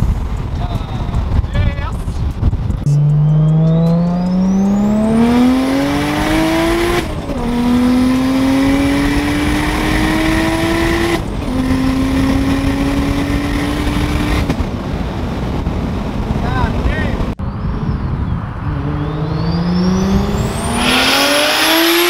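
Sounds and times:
car engine accelerating: 2.4s - 16.4s, 17.2s - 22.0s
turbo whistle: 2.9s - 4.9s.

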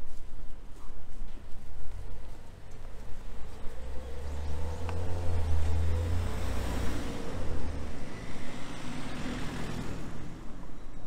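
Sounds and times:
car driving past: 2.9s - 11.0s.

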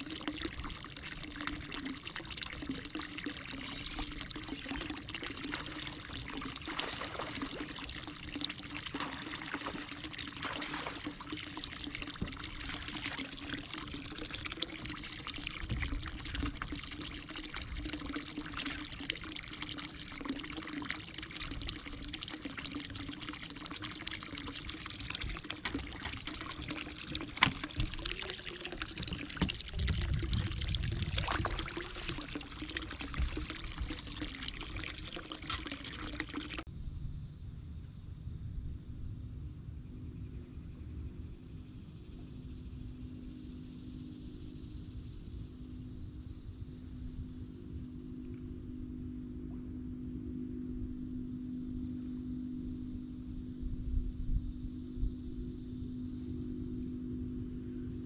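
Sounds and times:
water pouring and trickling: 0.0s - 36.7s
low hum: 0.0s - 58.0s.

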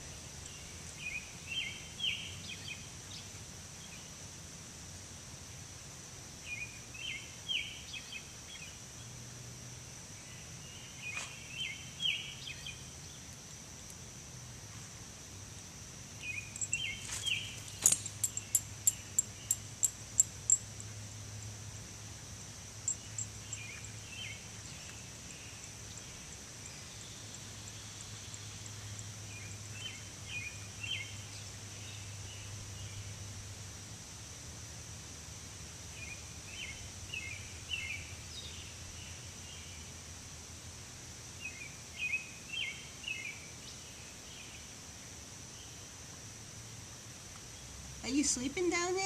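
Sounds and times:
high-pitched insect drone: 16.1s - 31.0s.

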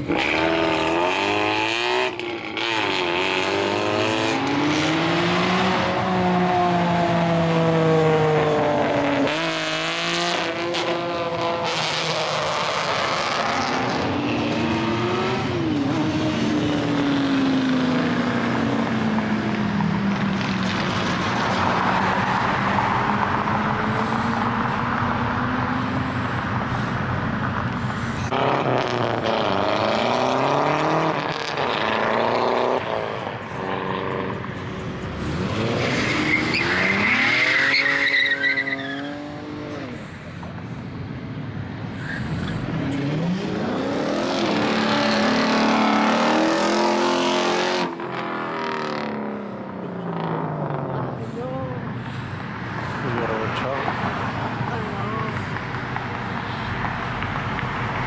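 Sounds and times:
cars accelerating hard: 0.0s - 58.0s
tire squeal: 35.2s - 39.3s, 42.0s - 42.6s.

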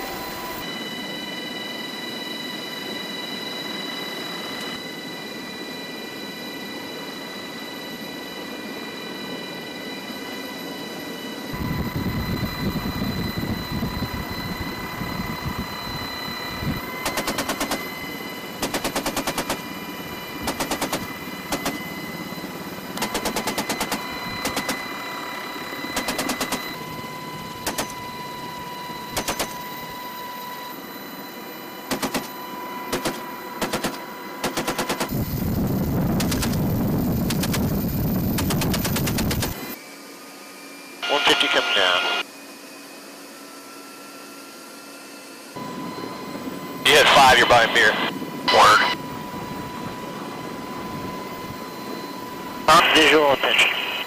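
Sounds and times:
helicopter cabin noise: 0.0s - 39.8s, 41.0s - 42.2s, 45.6s - 54.0s
machine gun firing bursts: 18.6s - 19.6s, 20.4s - 21.0s, 23.1s - 24.8s, 26.0s - 26.6s, 32.9s - 35.1s.

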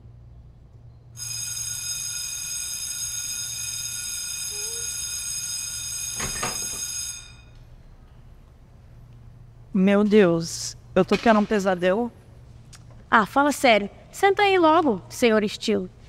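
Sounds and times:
bell ringing: 1.2s - 7.6s.

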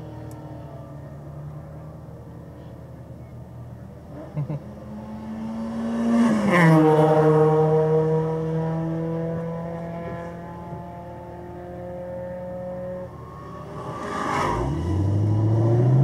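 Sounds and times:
passing car engine: 4.0s - 16.0s.

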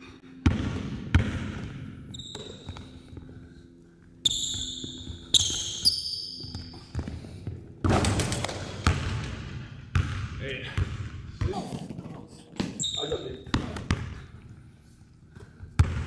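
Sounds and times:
basketball bouncing on hardwood: 0.4s - 2.9s, 6.4s - 11.6s, 15.7s - 16.0s.

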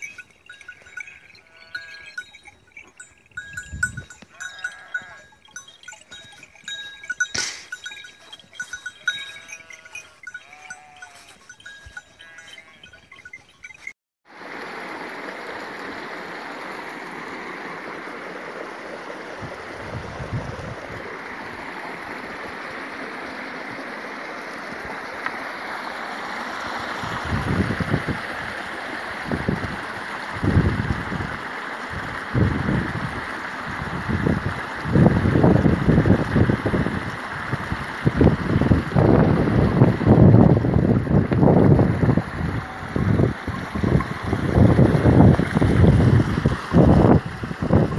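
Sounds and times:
steady ringing tones: 0.0s - 14.0s
sheep bleating: 0.8s - 2.4s, 4.3s - 5.4s, 8.6s - 13.0s
stream rushing over rock: 14.3s - 47.9s.

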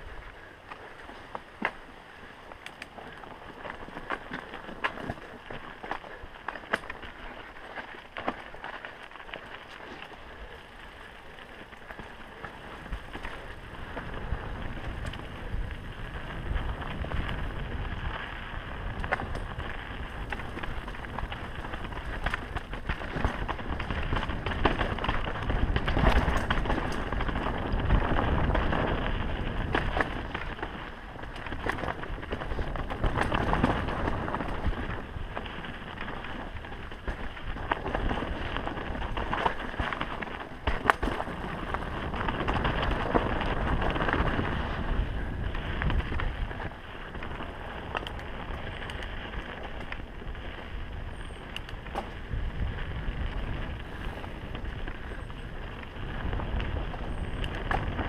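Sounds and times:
bike rattling over bumps: 0.0s - 58.0s
tyres crunching over stones: 0.7s - 58.0s
wind rushing over microphone: 11.9s - 58.0s.

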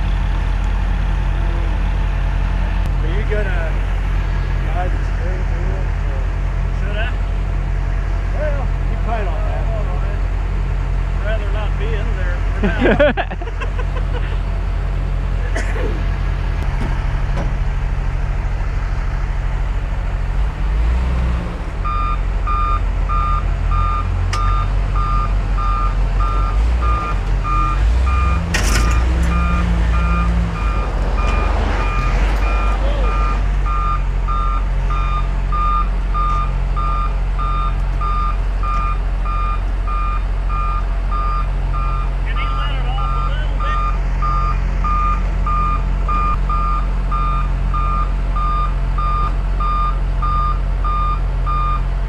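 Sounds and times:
diesel engine under load: 0.0s - 52.0s
reversing alarm beeping: 21.8s - 51.8s.

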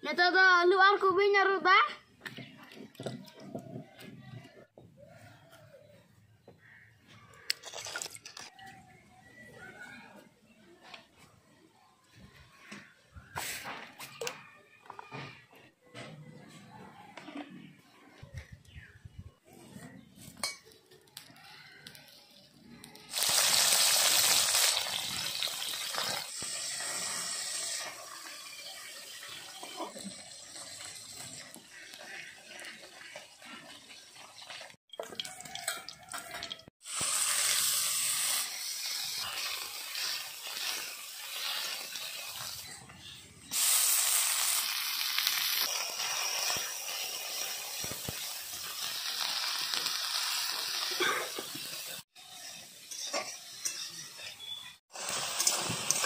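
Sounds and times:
hot oil sizzling: 23.0s - 42.8s, 43.5s - 56.0s.

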